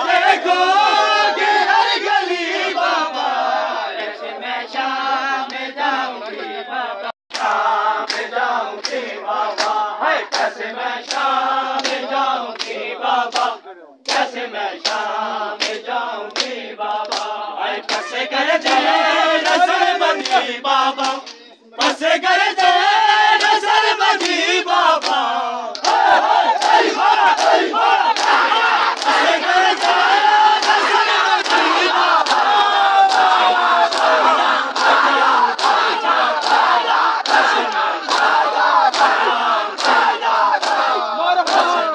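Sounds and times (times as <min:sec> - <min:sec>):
men chanting together: 0:00.0 - 0:41.9
chest-beating slaps: 0:16.4 - 0:18.8.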